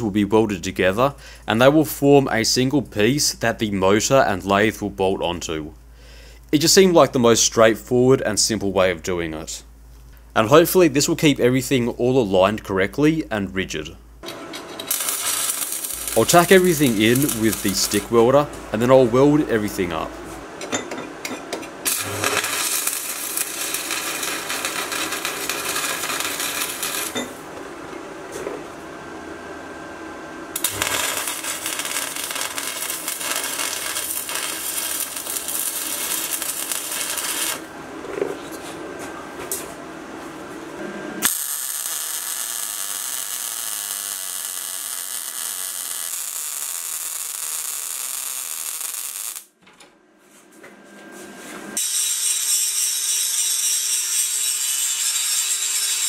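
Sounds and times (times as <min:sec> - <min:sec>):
welding arc crackling and sizzling: 0:14.2 - 0:19.9, 0:21.8 - 0:27.4, 0:30.6 - 0:37.7, 0:41.2 - 0:49.6, 0:51.8 - 0:56.0.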